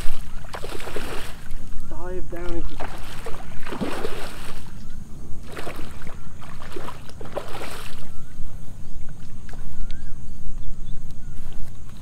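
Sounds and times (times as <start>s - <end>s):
fish splashing at surface: 0.0s - 1.6s, 2.6s - 4.7s, 5.4s - 8.1s
faint bird chirps: 0.0s - 12.0s
low wind rumble: 0.0s - 12.0s.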